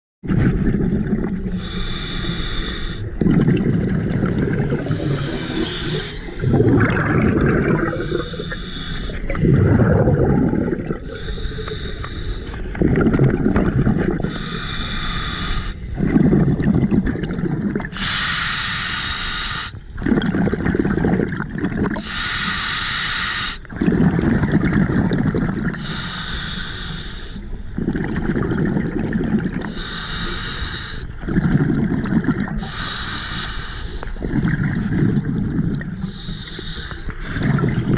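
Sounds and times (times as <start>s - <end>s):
exhaled bubbles rumbling: 0.2s - 18.3s, 19.8s - 22.4s, 23.6s - 26.2s, 27.4s - 37.9s
regulator hissing inhale: 1.6s - 3.2s, 4.8s - 6.4s, 7.9s - 9.4s, 11.0s - 12.8s, 14.2s - 15.9s, 17.9s - 19.8s, 22.0s - 23.7s, 25.8s - 27.7s, 29.6s - 31.2s, 32.6s - 34.2s, 36.0s - 37.8s.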